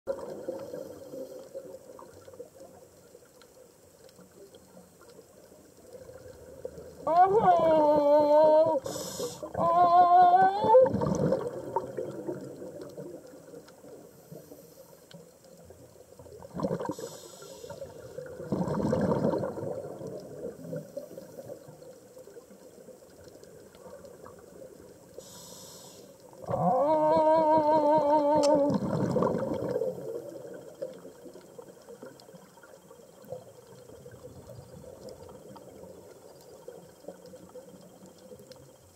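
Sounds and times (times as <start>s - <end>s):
regulator inhale hiss: 8.8s - 9.6s, 14.1s - 15.2s, 16.9s - 18.3s, 25.1s - 26.3s.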